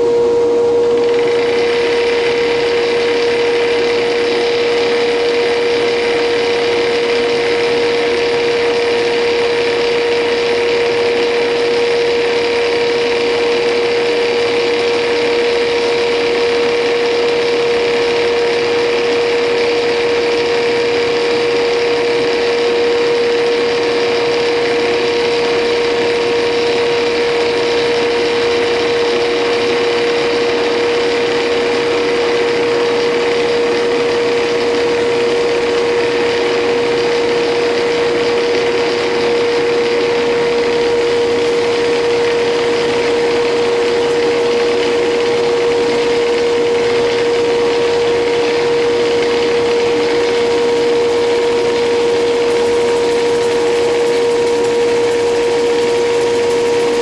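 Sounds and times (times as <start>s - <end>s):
lathe humming: 0.0s - 57.0s
wood cutting hiss: 0.9s - 57.0s.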